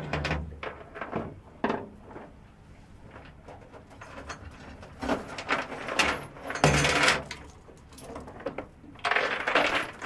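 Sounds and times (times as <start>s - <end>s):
chain rattling against metal: 3.9s - 8.4s.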